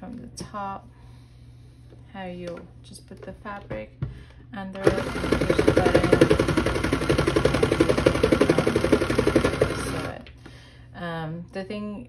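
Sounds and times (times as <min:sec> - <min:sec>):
toy sewing machine running: 0:04.8 - 0:10.2.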